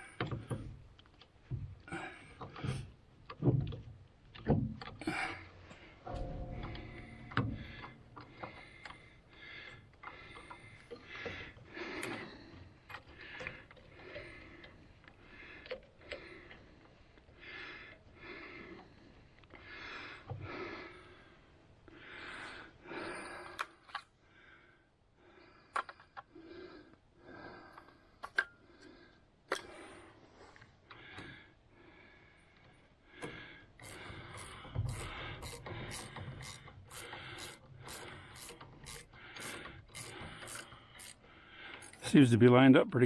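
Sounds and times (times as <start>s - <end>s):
man breathing: 1.7s - 3.0s, 5.0s - 42.3s
metal parts clicking: 33.8s - 42.1s.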